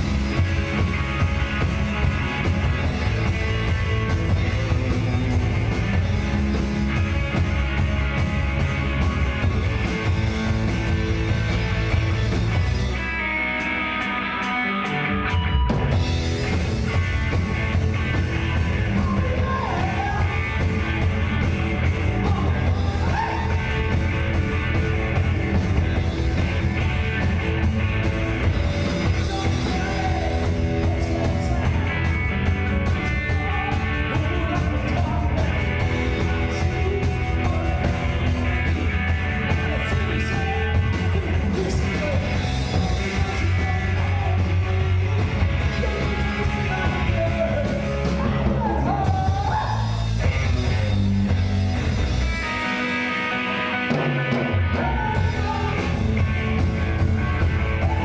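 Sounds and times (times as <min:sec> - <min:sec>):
live rock band: 0:00.0 - 0:58.0
sung and shouted vocals: 0:18.9 - 0:21.0, 0:22.1 - 0:23.9, 0:45.8 - 0:50.0, 0:54.7 - 0:56.0.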